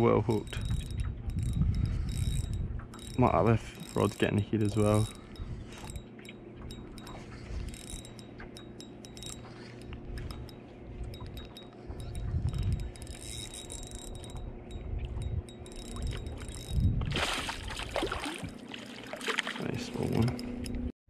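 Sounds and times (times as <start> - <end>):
fishing reel clicks: 0.1 - 17.0, 19.9 - 20.8
low rumble: 9.4 - 18.1.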